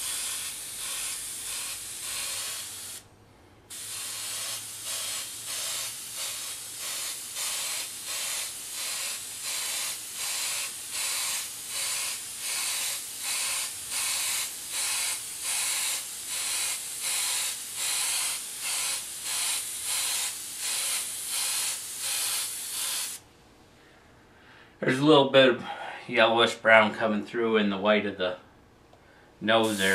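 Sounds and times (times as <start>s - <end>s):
airbrush hissing in pulses: 0.0s - 3.1s, 3.7s - 23.2s, 29.6s - 29.9s.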